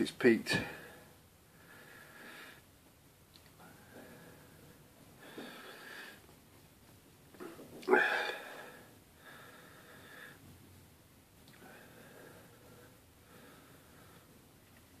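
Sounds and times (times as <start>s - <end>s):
man breathing heavily: 0.5s - 2.8s, 3.6s - 6.4s, 7.9s - 10.6s, 11.6s - 14.6s.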